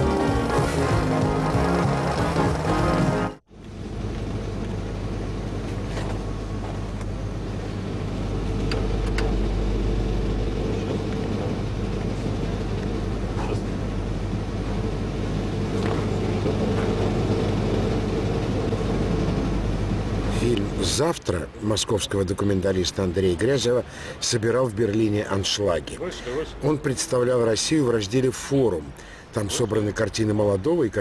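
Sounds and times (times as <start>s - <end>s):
refrigerated cases humming: 0.0s - 22.0s.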